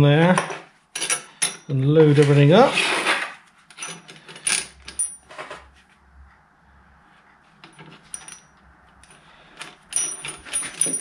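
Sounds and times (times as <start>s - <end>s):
metal parts clinking: 0.4s - 2.4s, 3.7s - 5.7s, 7.6s - 11.0s.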